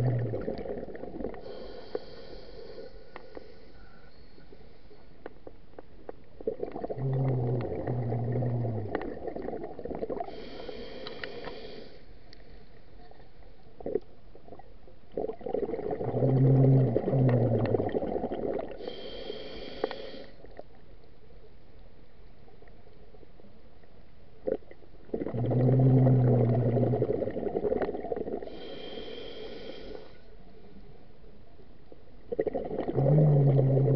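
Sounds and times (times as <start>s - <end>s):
scuba regulator breathing underwater: 0.2s - 5.0s, 10.1s - 12.1s, 16.1s - 20.4s, 25.3s - 30.3s.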